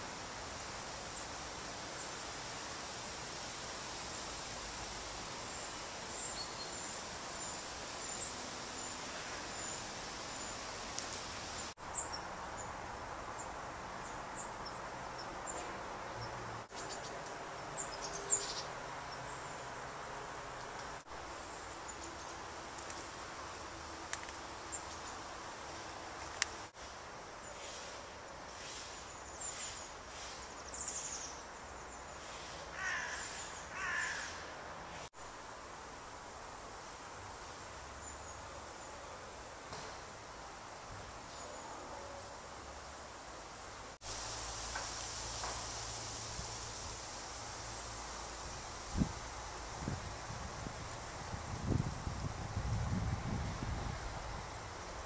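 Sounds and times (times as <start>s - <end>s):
steady background hiss: 0.0s - 55.0s
small birds chirping: 5.4s - 19.8s, 28.5s - 34.4s.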